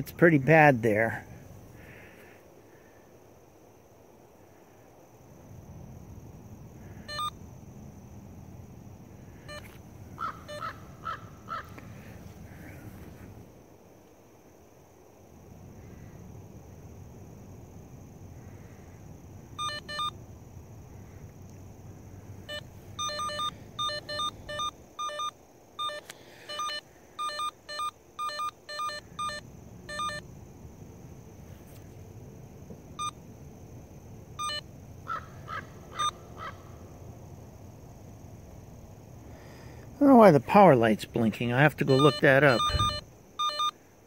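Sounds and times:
cable locator beeping: 0:07.1 - 0:07.4, 0:19.6 - 0:20.2, 0:22.5 - 0:30.2, 0:34.4 - 0:34.6, 0:41.8 - 0:43.8
high electronic chirps: 0:22.5 - 0:30.2, 0:41.8 - 0:43.7.

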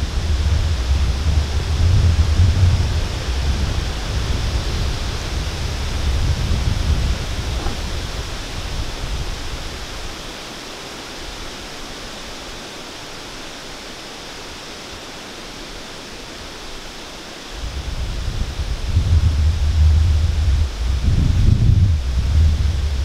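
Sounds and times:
wind buffeting on microphone: 0:00.0 - 0:10.4, 0:16.3 - 0:23.0
wind stirring leaves: 0:00.0 - 0:23.0.

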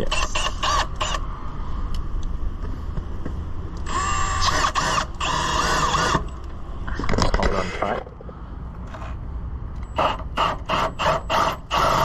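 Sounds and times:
cordless drill boring into metal: 0:03.9 - 0:06.2.

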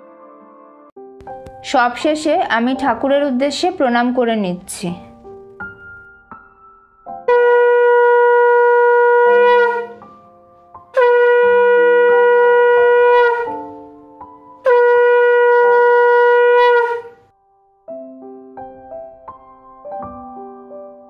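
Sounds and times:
soft keyboard music: 0:00.0 - 0:21.0
conch shell blasts: 0:07.3 - 0:10.0, 0:11.0 - 0:13.7, 0:14.7 - 0:17.2.

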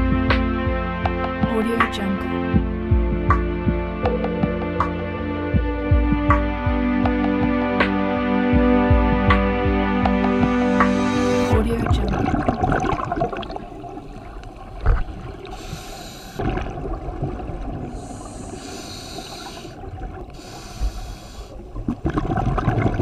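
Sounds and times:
water crackling and bubbling: 0:10.4 - 0:23.0
diver breathing through regulator: 0:15.4 - 0:16.6, 0:17.9 - 0:21.8.

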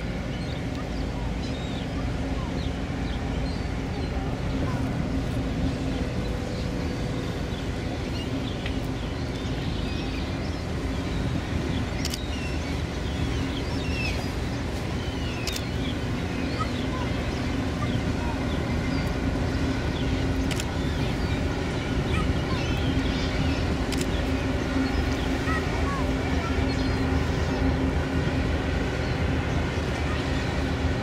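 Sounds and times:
ship engine rumble: 0:00.0 - 0:31.0
small birds chirping: 0:05.7 - 0:27.7.

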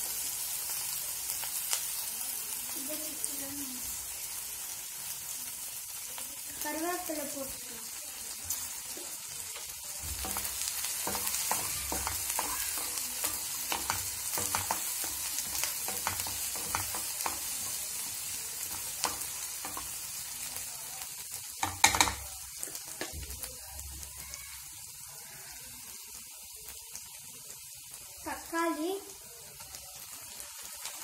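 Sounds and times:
food sizzling in hot oil: 0:00.0 - 0:31.0
spatula scraping pan: 0:08.5 - 0:20.0.

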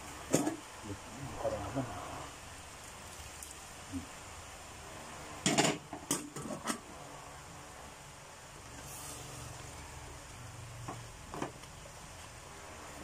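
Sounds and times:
steady low hiss: 0:00.0 - 0:13.0
pans and utensil clattering: 0:05.4 - 0:06.8.

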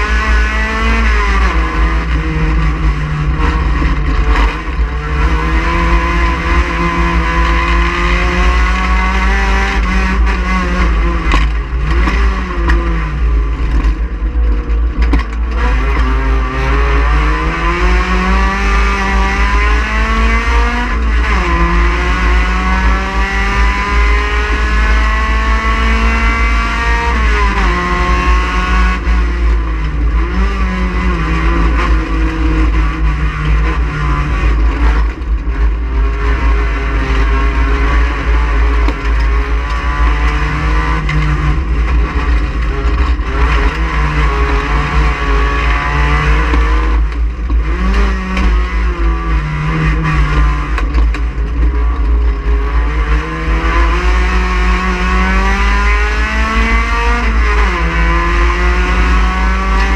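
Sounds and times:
heavy low rumble: 0:00.0 - 0:58.9
race car engine revving: 0:00.0 - 0:59.9.

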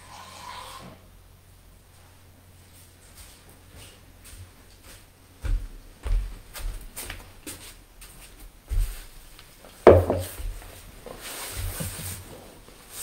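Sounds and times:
thuds on wooden floor: 0:09.9 - 0:10.6.

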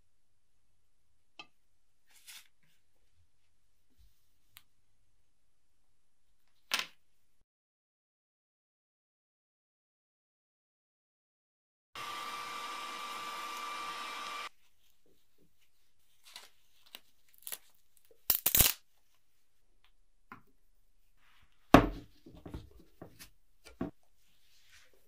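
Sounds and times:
workshop machine running: 0:12.0 - 0:14.5.

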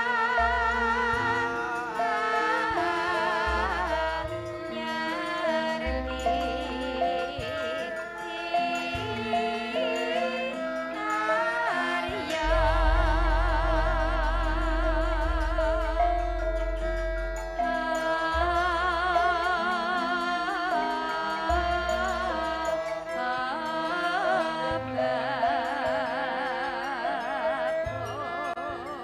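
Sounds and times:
women singing with vibrato: 0:00.0 - 0:29.0
deep low notes: 0:12.4 - 0:19.3.

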